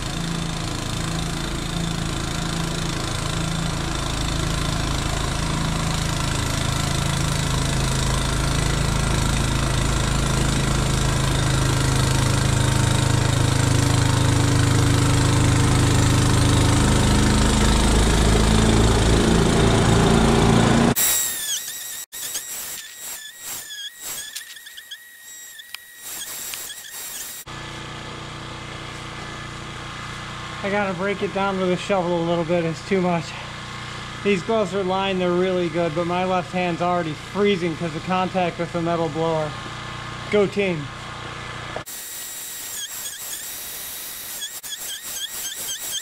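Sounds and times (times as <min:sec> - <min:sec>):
sped-up snowblower engine: 0:00.0 - 0:46.0
falling high squeaks: 0:21.0 - 0:27.5, 0:42.0 - 0:46.0.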